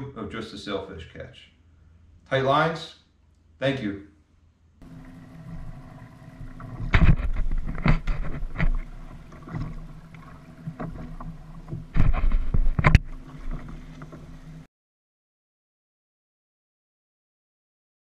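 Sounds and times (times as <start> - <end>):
steady low hum: 1.4 - 14.7
water slapping kayak hull: 4.8 - 14.7.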